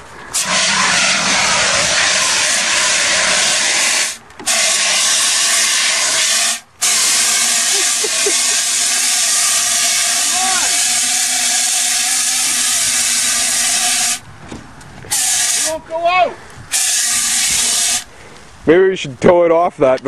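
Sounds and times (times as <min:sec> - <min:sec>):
fire extinguisher hissing: 0:00.3 - 0:14.2, 0:15.1 - 0:15.8, 0:16.7 - 0:18.1.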